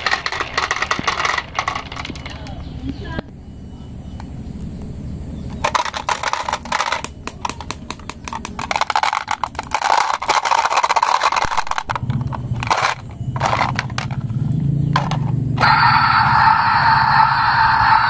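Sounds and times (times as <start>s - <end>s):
marbles rattling in plastic bin: 0.0s - 2.4s, 5.6s - 14.4s
low steady hum: 0.0s - 18.0s.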